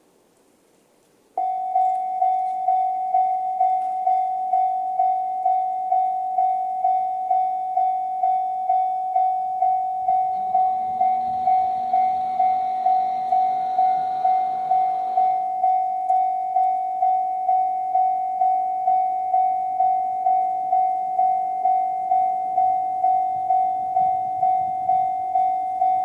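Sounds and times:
low hum: 1.2s - 26.0s
level-crossing warning bell ding: 1.4s - 26.0s.

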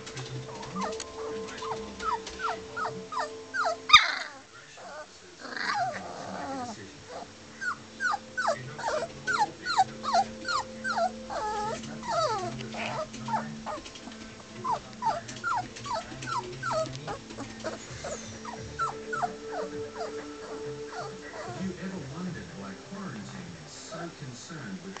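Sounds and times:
puppy whining: 0.0s - 22.0s.

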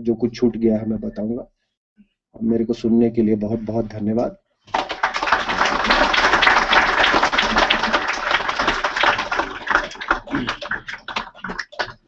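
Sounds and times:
audience applause: 4.7s - 12.0s.

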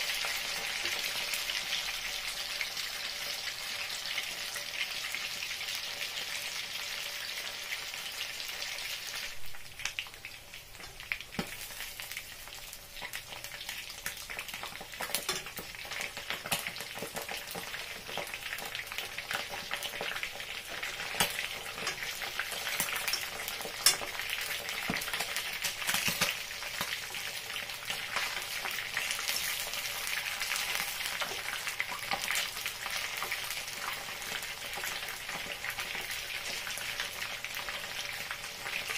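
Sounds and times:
fish sizzling in oil: 0.0s - 38.9s
fork clicking against pan: 23.8s - 24.2s.

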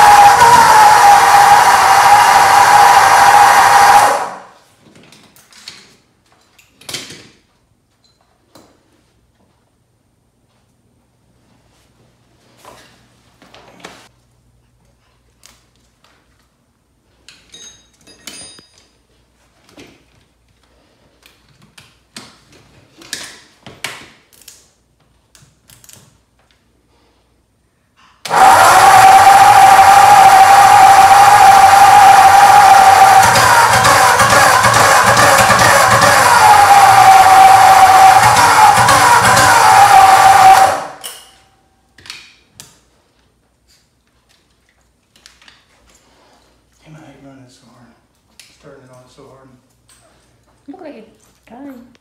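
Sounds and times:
loud background music: 32.0s - 40.8s.

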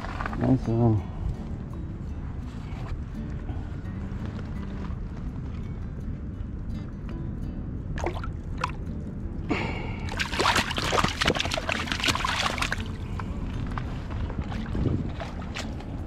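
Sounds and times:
steady low rumble: 0.0s - 16.0s
water splashing and sloshing: 8.0s - 8.9s, 9.9s - 16.0s.

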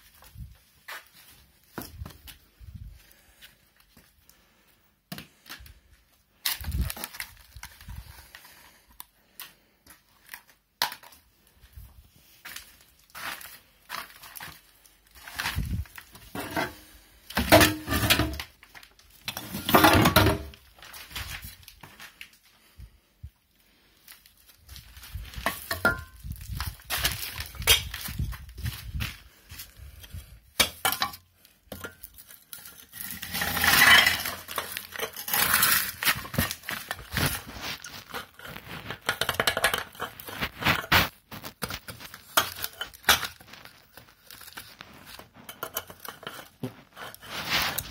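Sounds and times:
objects clinking and knocking: 19.3s - 20.6s, 25.3s - 26.3s, 30.6s - 43.9s, 45.4s - 46.8s.

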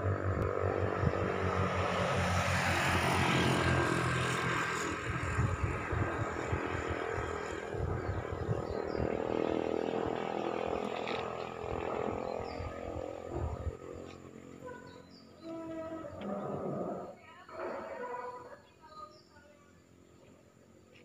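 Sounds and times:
road vehicle passing: 0.0s - 18.4s.

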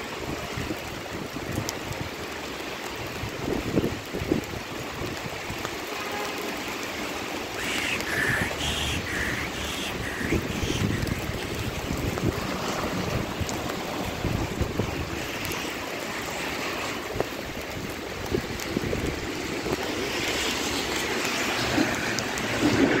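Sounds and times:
heavy rain on wet street: 0.0s - 23.0s
short high-pitched sounds: 7.6s - 11.2s.

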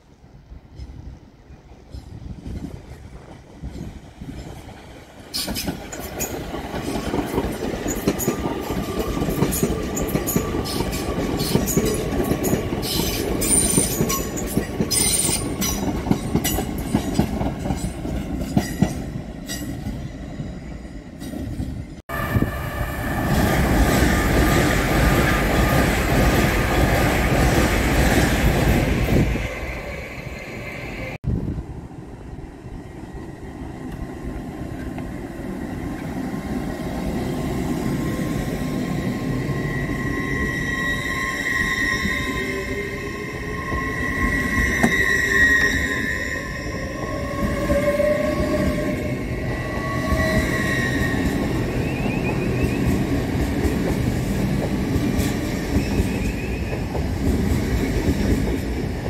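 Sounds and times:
loud train rumble: 0.0s - 59.0s
train whine: 0.0s - 59.0s
high squeal: 38.0s - 53.1s.

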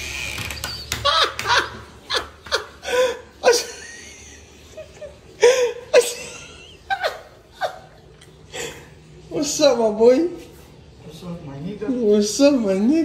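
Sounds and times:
person chuckling: 1.0s - 8.9s.

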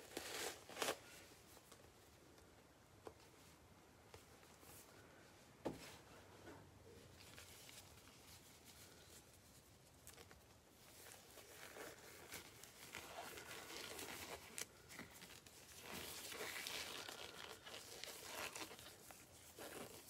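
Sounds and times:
packaging crinkling and rustling: 0.0s - 1.9s, 7.1s - 20.0s.

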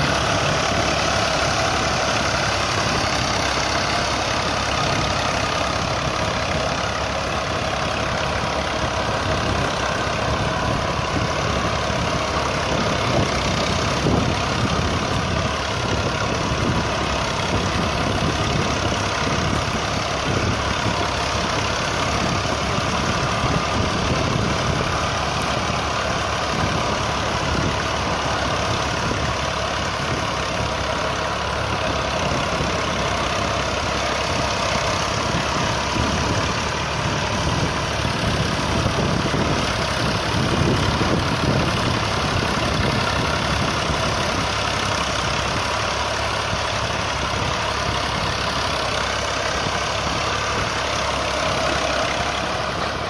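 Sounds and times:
tractor diesel engine under load: 0.0s - 53.0s.

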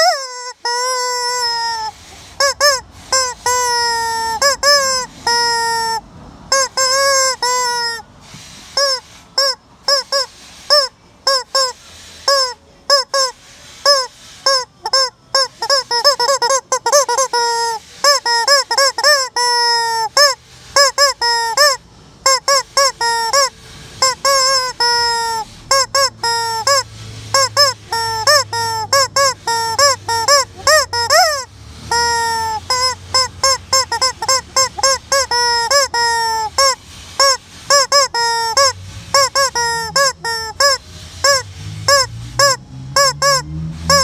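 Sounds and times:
rubber chicken toy squawking: 0.0s - 44.0s.

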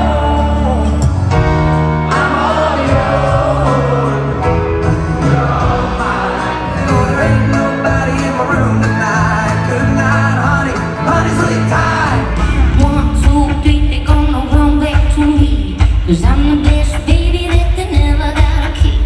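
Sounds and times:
country band with man singing: 0.0s - 14.7s
band with heavy drum and bass: 0.0s - 19.0s
woman singing: 12.8s - 19.0s.

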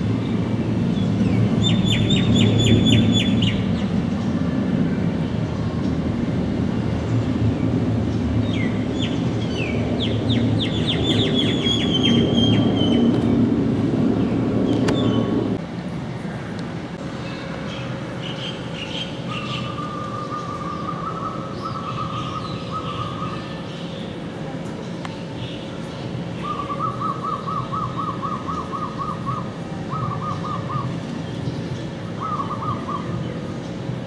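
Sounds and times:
jet engine rumble overhead: 0.0s - 34.0s
small bird chirping: 1.0s - 3.9s.

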